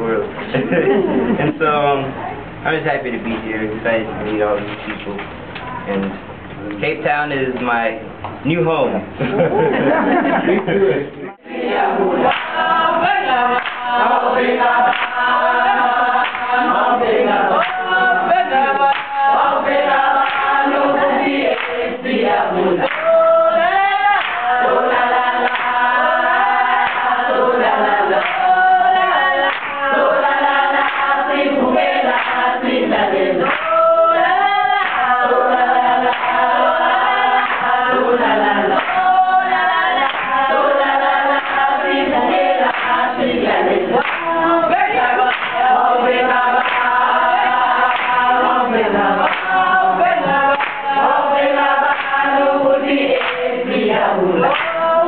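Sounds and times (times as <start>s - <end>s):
women singing together: 9.3s - 55.0s
hand clapping: 12.3s - 12.6s, 13.5s - 14.0s, 14.9s - 15.2s, 16.2s - 16.6s, 17.6s - 18.0s, 18.9s - 19.2s, 20.2s - 20.9s, 21.5s - 21.8s, 22.8s - 23.2s, 24.2s - 24.6s, 25.4s - 25.8s, 26.8s - 27.1s, 28.2s - 28.5s, 29.5s - 29.9s, 30.8s - 31.1s, 33.4s - 33.8s, 34.8s - 35.2s, 36.1s - 36.4s, 37.4s - 37.8s, 38.8s - 39.1s, 40.0s - 40.4s, 42.6s - 43.0s, 44.0s - 44.4s, 45.0s - 45.7s, 46.6s - 48.2s, 49.2s - 49.6s, 50.3s - 51.0s, 51.8s - 52.2s, 53.1s - 53.5s, 54.4s - 54.9s.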